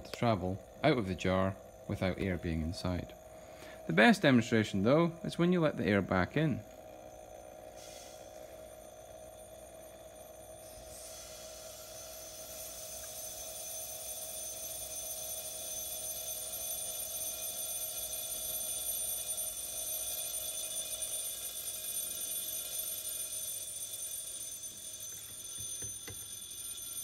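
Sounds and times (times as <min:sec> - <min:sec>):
electric bell ringing: 0:06.0 - 0:27.0.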